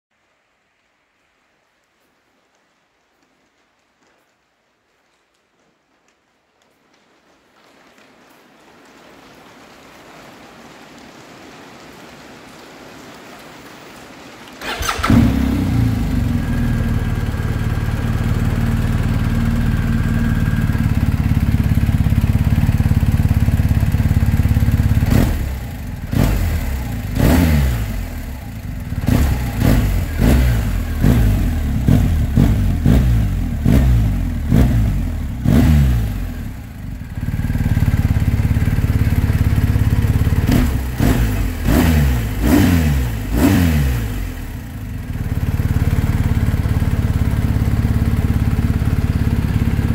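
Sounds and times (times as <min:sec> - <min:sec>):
motorcycle engine starting and revving: 0:14.6 - 0:49.9.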